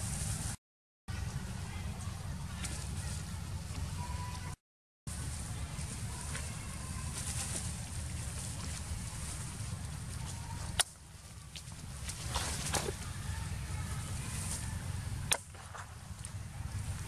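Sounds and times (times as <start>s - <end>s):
low rumble and hiss: 0.0s - 17.0s
rustling: 5.1s - 17.0s.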